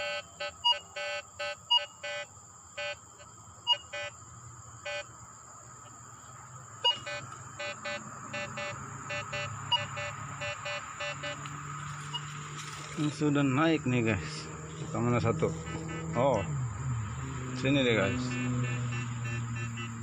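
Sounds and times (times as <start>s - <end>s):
metal detector beeping: 0.0s - 3.0s, 3.7s - 4.1s, 4.9s - 5.1s, 6.8s - 11.5s
metal detector high chirp: 0.0s - 3.0s, 3.7s - 4.1s, 6.8s - 11.4s.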